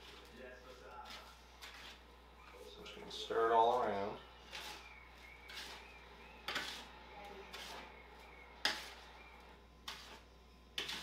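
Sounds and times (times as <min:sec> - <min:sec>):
spoon scraping metal tray: 0:01.0 - 0:02.1, 0:03.6 - 0:11.0.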